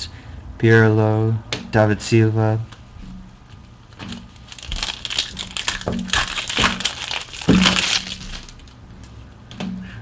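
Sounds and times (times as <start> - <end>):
foil pack crinkling: 3.9 - 8.8.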